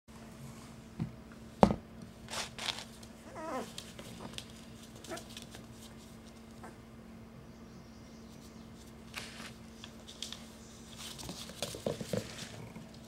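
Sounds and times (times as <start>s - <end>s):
steady low hum: 0.1s - 13.0s
puppy whimpering: 3.2s - 3.8s.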